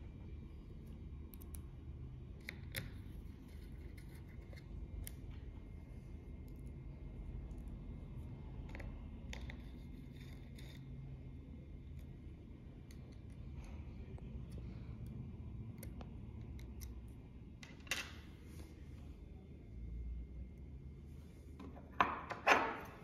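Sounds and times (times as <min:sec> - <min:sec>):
metal clicks and scrapes: 0:08.7 - 0:11.1.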